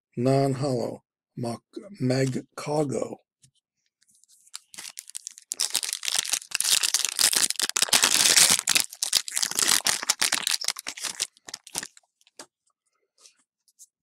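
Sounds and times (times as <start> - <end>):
foil wrapper crinkling and tearing: 4.5 - 12.0.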